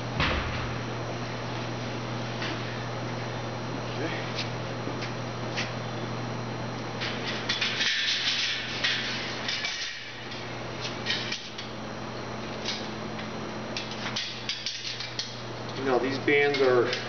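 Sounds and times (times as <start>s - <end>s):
steady low hum: 0.0s - 17.0s
rustling and scraping: 7.0s - 10.1s.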